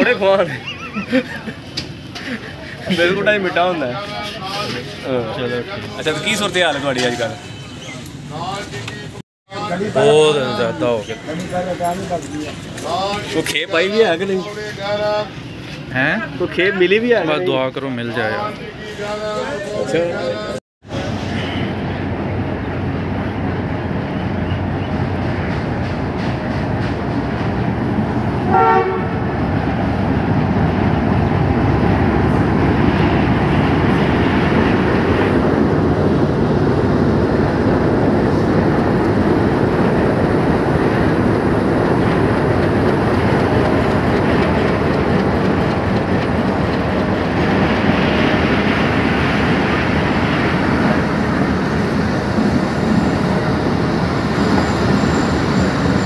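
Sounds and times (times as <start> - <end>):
locomotive horn blast: 28.4 - 29.2
locomotive engine running: 30.1 - 56.0
train wheels clicking over rails: 38.0 - 56.0.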